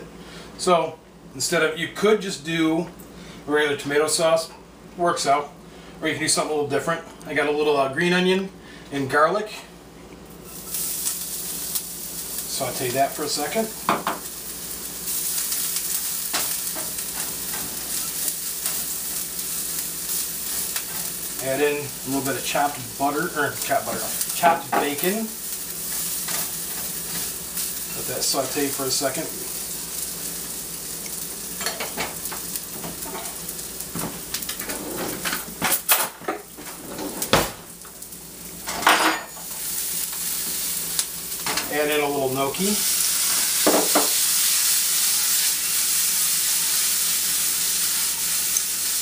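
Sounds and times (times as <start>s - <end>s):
onion and garlic sizzling: 10.3s - 49.0s.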